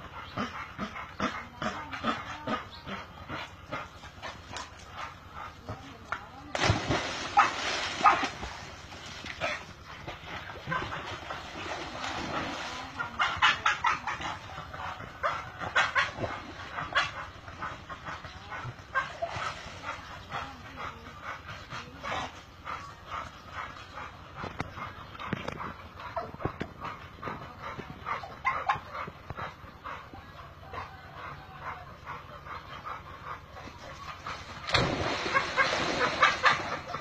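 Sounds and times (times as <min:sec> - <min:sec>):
dog splashing into water: 0:06.5 - 0:09.6, 0:10.5 - 0:13.2, 0:34.4 - 0:37.0
dog barking: 0:07.3 - 0:08.4.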